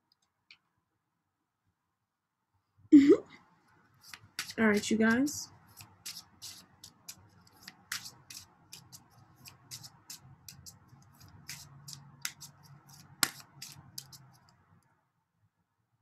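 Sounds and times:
cards being shuffled: 4.0 - 14.6.

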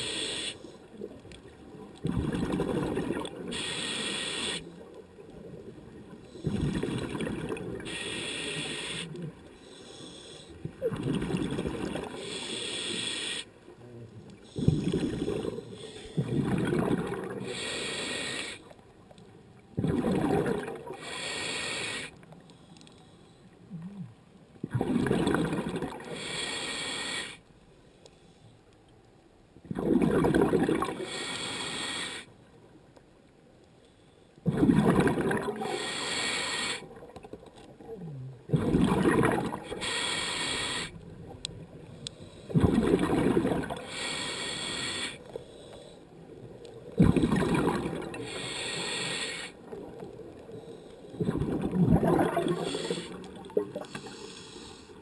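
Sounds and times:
diver breathing through regulator: 0.0 - 0.8, 3.5 - 4.7, 7.8 - 10.6, 12.0 - 13.5, 17.4 - 18.7, 21.0 - 23.5, 26.0 - 27.4, 30.9 - 32.3, 35.6 - 36.9, 39.6 - 41.0, 43.7 - 46.2, 48.1 - 49.7, 52.2 - 55.0
exhaled bubbles rushing: 2.0 - 3.4, 6.4 - 7.8, 10.8 - 12.2, 16.2 - 17.4, 19.8 - 21.0, 24.7 - 26.1, 29.7 - 31.0, 34.4 - 35.7, 38.5 - 39.7, 42.5 - 43.8, 46.9 - 48.2, 51.2 - 54.0.

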